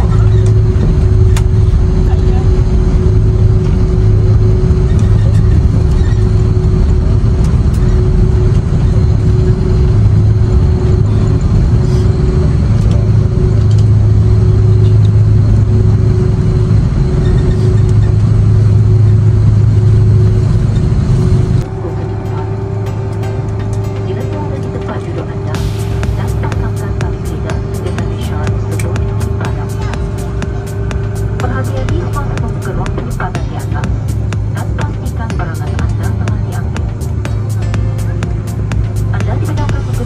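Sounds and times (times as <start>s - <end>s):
jet engine and rushing air: 0.0s - 40.0s
low hum: 0.0s - 40.0s
steady mid-pitched tone: 0.0s - 40.0s.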